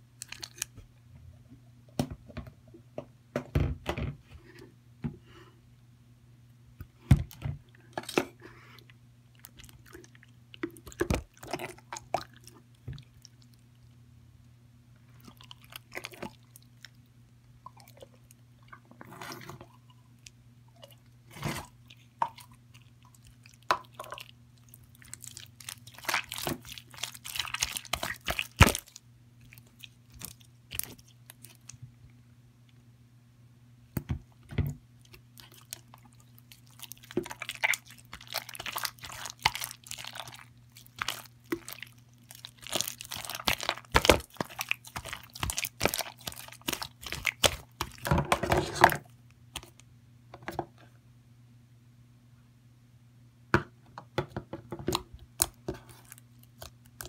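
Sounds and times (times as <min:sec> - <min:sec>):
hands squishing slime: 0:21.0 - 0:31.8, 0:35.0 - 0:48.1.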